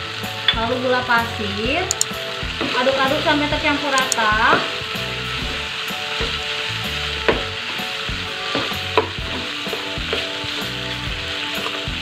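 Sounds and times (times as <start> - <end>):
meat sizzling in a frying pan: 0.0 - 12.0
spatula scraping and knocking pan: 4.3 - 12.0.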